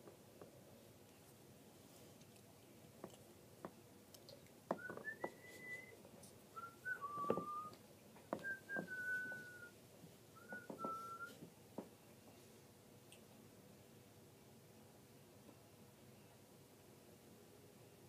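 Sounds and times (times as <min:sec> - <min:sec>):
person whistling: 0:04.8 - 0:06.0, 0:06.6 - 0:07.8, 0:08.4 - 0:09.7, 0:10.4 - 0:11.4.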